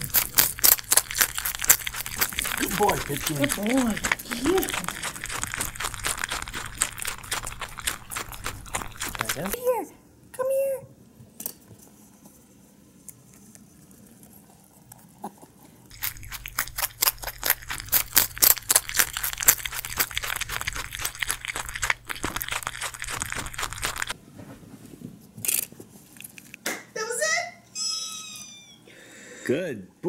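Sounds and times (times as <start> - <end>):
rabbit chewing crisp vegetable: 0.0 - 9.9, 11.6 - 24.2, 25.4 - 26.6.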